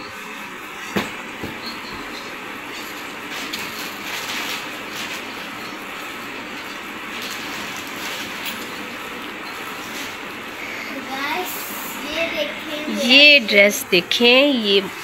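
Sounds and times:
plastic bag rustling: 2.7 - 10.6.

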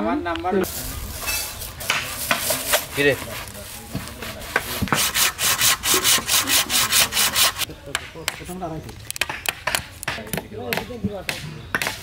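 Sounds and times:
hand saw cutting wood: 1.9 - 7.7.

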